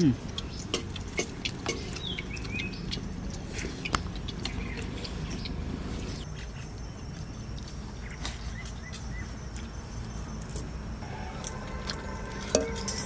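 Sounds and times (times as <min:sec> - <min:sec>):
fingers mixing rice and curry: 0:00.2 - 0:09.8
bird chirps: 0:01.8 - 0:03.1.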